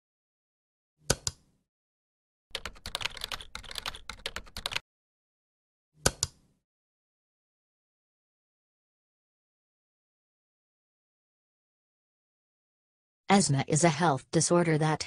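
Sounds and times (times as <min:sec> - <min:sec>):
keyboard typing: 0:02.5 - 0:04.8.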